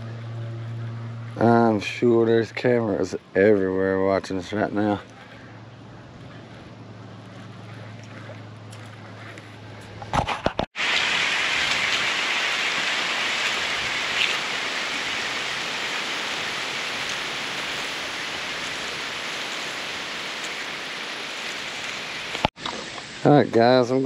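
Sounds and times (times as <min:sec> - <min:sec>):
running water: 0:10.8 - 0:24.0.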